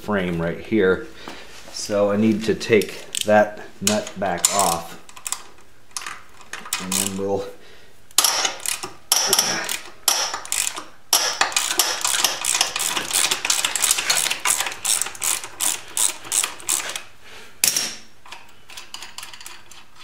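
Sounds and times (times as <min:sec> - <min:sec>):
ratchet wrench clicking: 0:06.7 - 0:07.2, 0:08.2 - 0:17.0.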